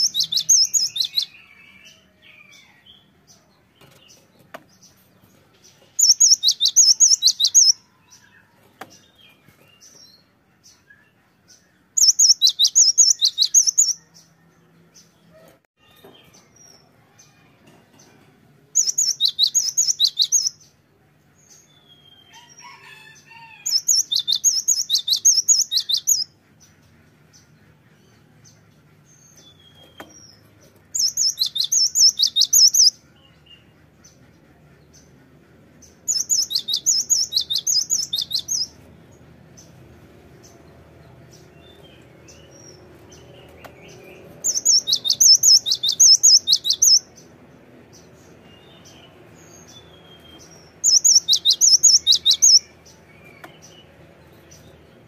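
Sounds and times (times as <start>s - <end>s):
bird singing rapid high notes: 0.0s - 1.4s, 6.0s - 7.8s, 12.0s - 14.0s, 18.8s - 20.6s, 36.1s - 38.8s, 43.2s - 47.1s, 48.4s - 53.8s.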